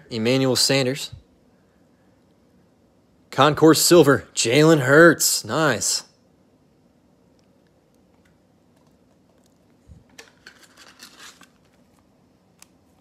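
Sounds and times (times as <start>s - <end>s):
cards scratching and clicking: 10.2s - 12.0s.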